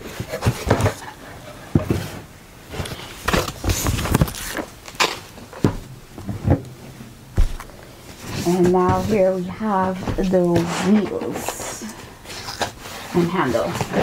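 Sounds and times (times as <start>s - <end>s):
cardboard boxes knocking and scraping: 0.1s - 4.7s, 8.2s - 11.5s.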